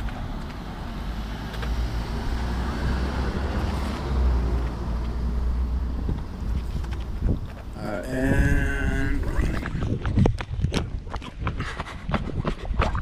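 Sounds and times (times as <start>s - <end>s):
car passing: 0.0s - 8.2s.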